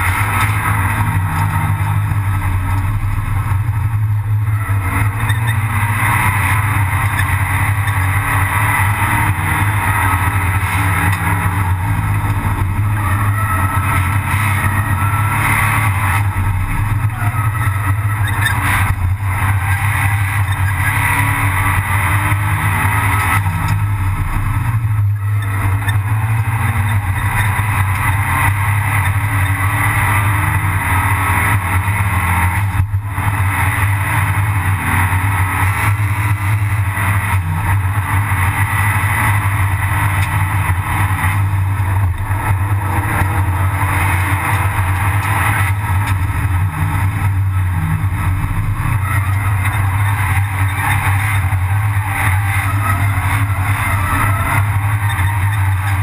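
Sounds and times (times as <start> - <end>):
race car engine running hard: 0.0 - 56.0
road and tyre noise: 0.0 - 56.0.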